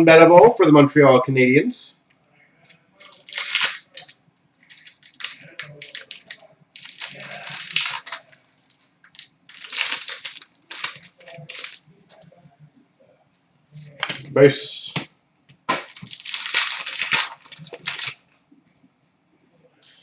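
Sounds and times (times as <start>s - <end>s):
cards being handled: 3.0s - 11.8s
wrapper ripping and crinkling: 3.0s - 11.8s, 15.7s - 18.2s.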